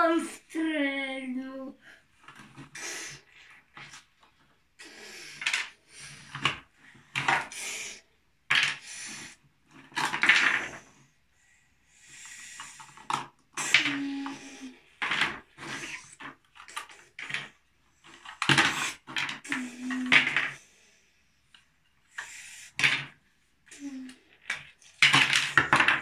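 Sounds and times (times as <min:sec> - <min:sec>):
plastic toy pieces clattering: 0:05.3 - 0:07.6, 0:08.5 - 0:08.9, 0:09.7 - 0:10.8, 0:12.6 - 0:20.6, 0:22.2 - 0:26.0.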